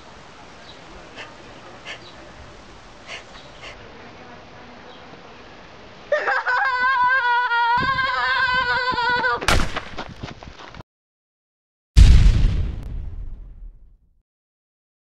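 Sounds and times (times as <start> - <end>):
boy screaming: 6.1 - 9.5
gunshot-like bang: 9.5 - 9.9, 12.0 - 13.8.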